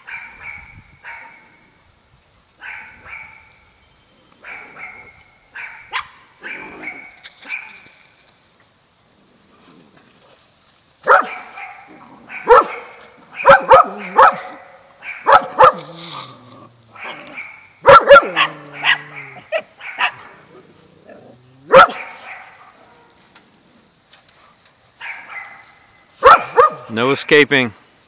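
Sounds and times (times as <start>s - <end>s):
dog barking: 0.0s - 1.5s, 2.6s - 3.5s, 4.4s - 7.8s, 11.0s - 15.9s, 16.9s - 20.4s, 21.7s - 23.1s, 25.0s - 26.9s.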